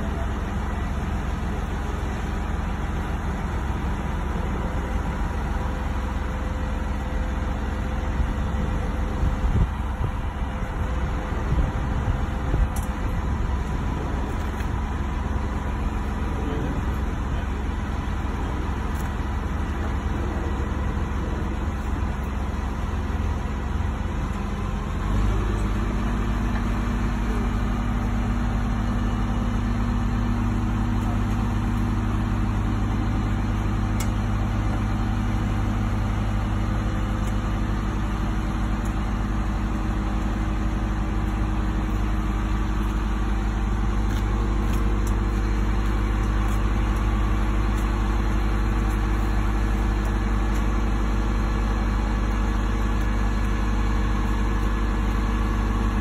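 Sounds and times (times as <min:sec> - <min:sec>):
diesel engine running: 0:00.0 - 0:56.0.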